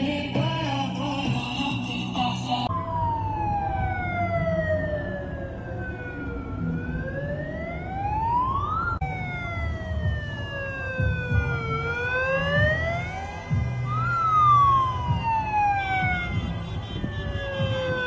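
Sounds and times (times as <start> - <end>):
low rumble of car engines: 0.0 - 18.0
siren wailing: 2.6 - 18.0.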